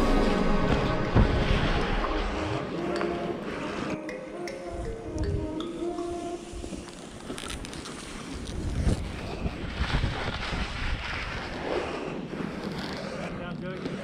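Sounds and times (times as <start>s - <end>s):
wind on microphone: 4.6s - 14.0s
skis sliding through snow: 6.0s - 14.0s.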